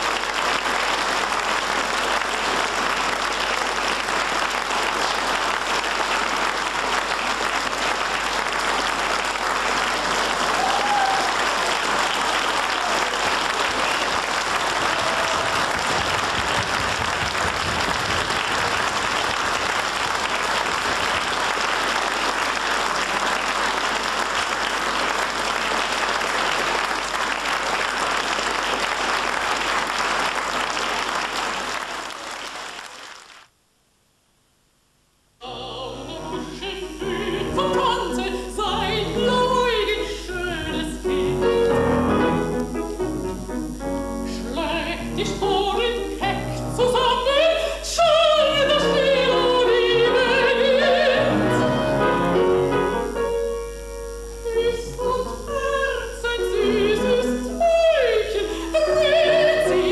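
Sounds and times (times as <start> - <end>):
audience applauding: 0.0 - 33.5.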